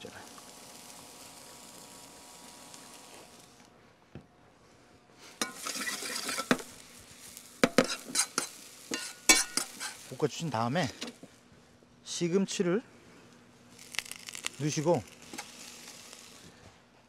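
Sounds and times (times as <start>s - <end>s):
onion sizzling in a frying pan: 0.0s - 3.6s, 5.2s - 11.3s, 13.7s - 16.6s.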